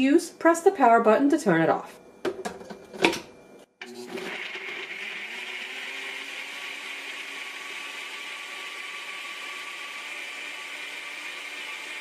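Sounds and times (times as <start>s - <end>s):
blender whirring: 3.8s - 12.0s.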